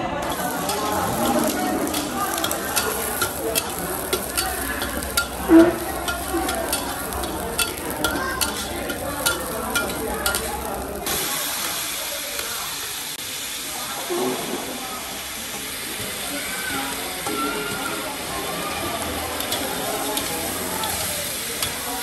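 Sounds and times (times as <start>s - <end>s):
food sizzling in hot oil: 0.1s - 22.0s
metal ladle scraping a wok: 0.2s - 11.2s.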